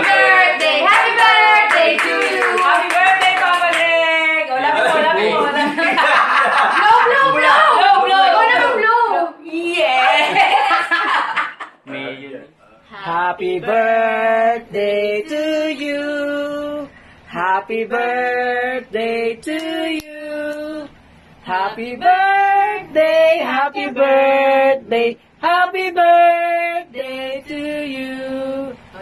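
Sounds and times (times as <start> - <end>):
man and woman singing: 12.8 - 29.0.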